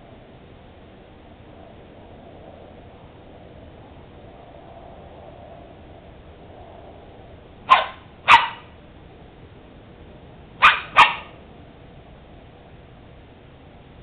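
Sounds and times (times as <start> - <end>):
dog barking: 7.7 - 8.7, 10.6 - 11.4.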